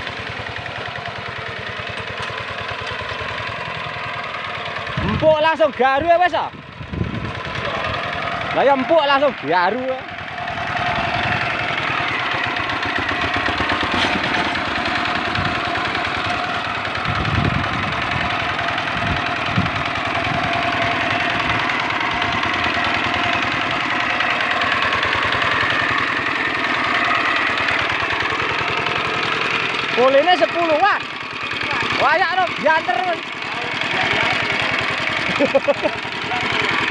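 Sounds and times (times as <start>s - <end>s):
diesel engine running under load: 0.0s - 36.9s.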